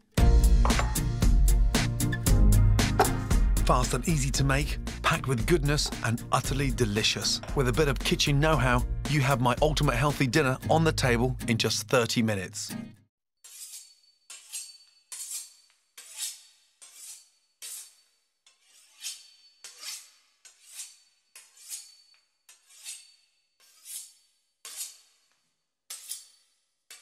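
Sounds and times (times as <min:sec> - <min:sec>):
knife sawing through crisp pastry: 0:13.4 - 0:26.5.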